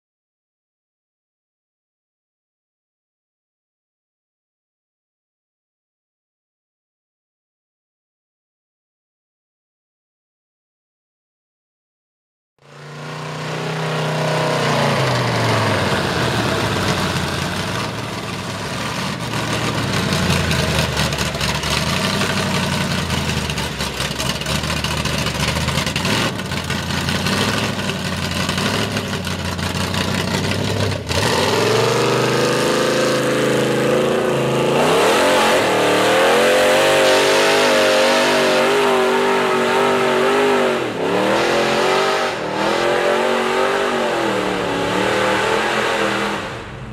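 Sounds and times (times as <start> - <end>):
pickup engine revving: 12.7 - 46.9.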